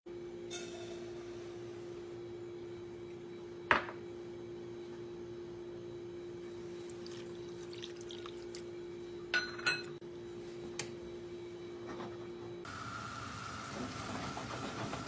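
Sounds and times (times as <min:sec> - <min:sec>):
steady hum: 0:00.1 - 0:13.5
water trickling into pan: 0:06.8 - 0:08.7.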